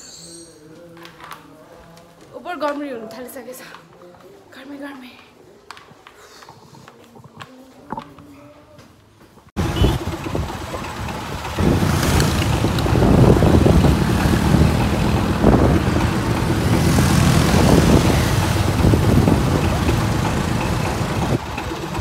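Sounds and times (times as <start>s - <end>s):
car engines: 9.6s - 22.0s
motorcycle engines: 9.6s - 22.0s.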